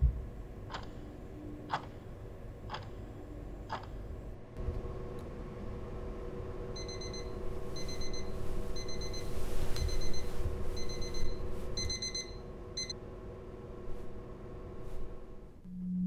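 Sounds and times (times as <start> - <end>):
phone alarm beeping: 6.8 - 13.0
bedding rustling: 7.0 - 12.3.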